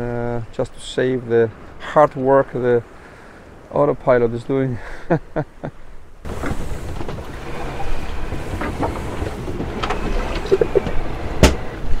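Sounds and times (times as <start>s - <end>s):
waves rushing along a boat: 0.0s - 12.0s
knocks from the boat: 6.3s - 12.0s.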